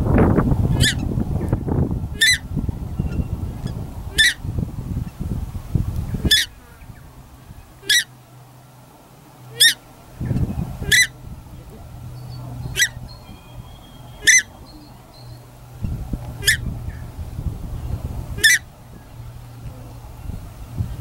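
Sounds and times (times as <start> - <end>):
low rumbling noise: 0.0 - 21.0
duck honking calls: 0.7 - 1.0, 2.2 - 2.4, 4.1 - 4.4, 6.2 - 6.7, 7.8 - 8.2, 9.4 - 15.0, 16.4 - 17.1, 18.3 - 18.7.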